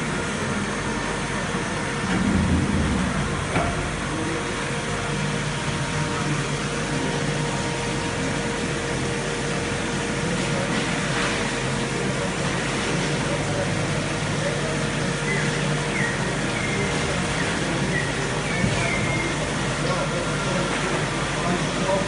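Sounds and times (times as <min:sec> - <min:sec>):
machine humming with faint whine: 0:00.0 - 0:22.0
low rumble: 0:02.1 - 0:05.0.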